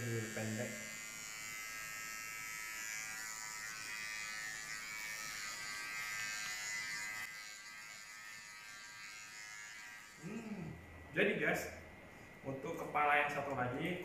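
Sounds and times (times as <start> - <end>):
electric hair clipper buzzing: 0.0 - 10.3.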